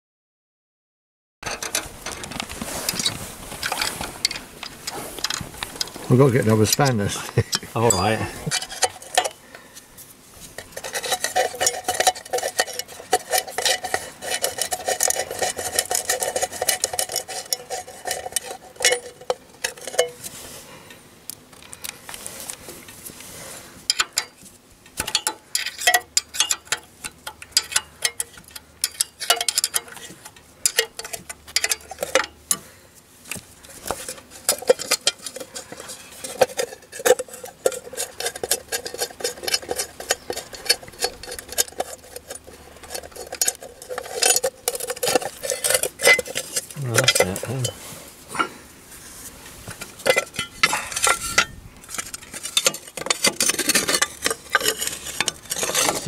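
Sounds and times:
spanner clicking and clinking: 0:25.0 - 0:32.6.

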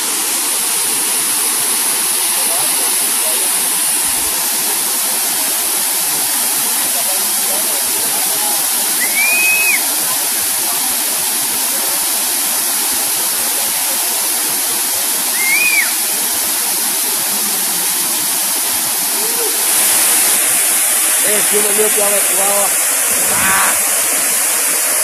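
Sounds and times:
waterfall pouring into pool: 0:00.0 - 0:25.0
short high rising call: 0:23.1 - 0:24.0.

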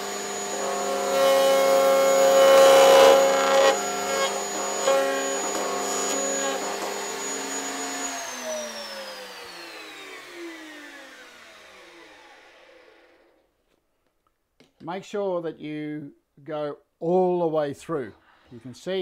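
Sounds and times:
router motor whining: 0:00.0 - 0:13.3.

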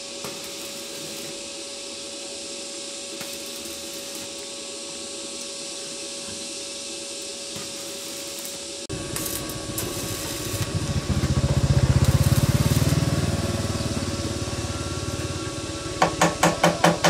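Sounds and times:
small engine running: 0:07.6 - 0:16.4.

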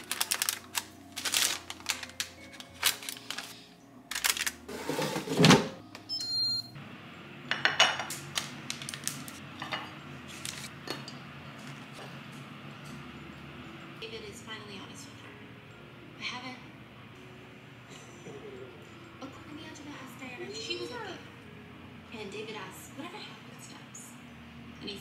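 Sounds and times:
paper liner crinkling: 0:00.0 - 0:04.7, 0:10.3 - 0:10.7.

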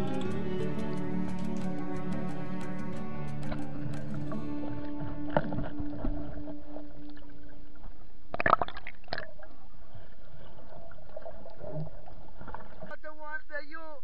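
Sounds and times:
underwater sloshing and gurgling: 0:04.8 - 0:12.9
bubbles: 0:08.3 - 0:09.6.

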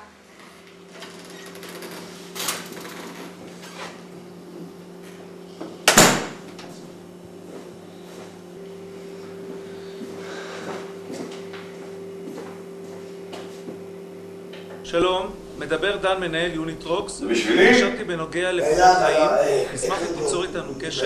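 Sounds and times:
steady low hum: 0:00.0 - 0:21.0
door shutting with bang: 0:05.9 - 0:06.4.

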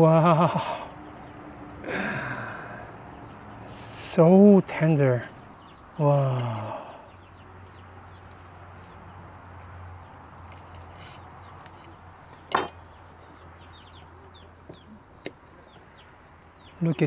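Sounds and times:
faint birds chirping: 0:00.0 - 0:17.0
sharp clink: 0:12.5 - 0:12.9.

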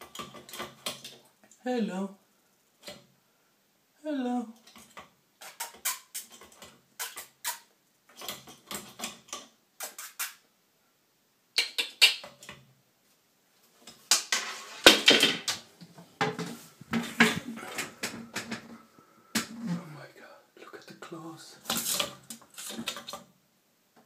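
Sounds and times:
bird scratching in a duct: 0:09.8 - 0:10.4.

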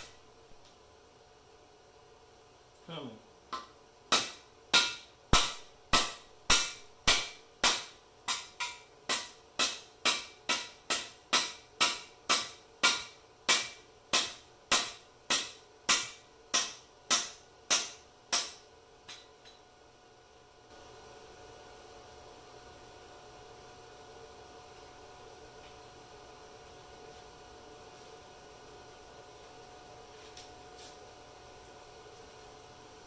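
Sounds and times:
hammer striking metal: 0:03.5 - 0:19.6.

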